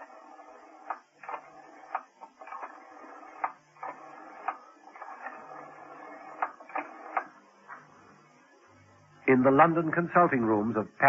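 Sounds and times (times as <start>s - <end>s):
rotary dial whirring: 0.0s - 9.2s
low telephone hums: 0.0s - 11.0s
rotary dial clicks: 0.8s - 7.3s.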